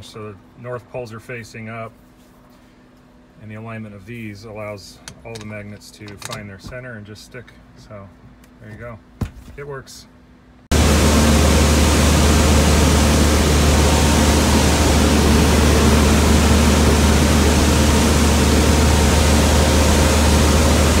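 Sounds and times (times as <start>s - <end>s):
light aircraft engine and propeller: 10.7s - 21.0s
rushing airflow: 10.7s - 21.0s.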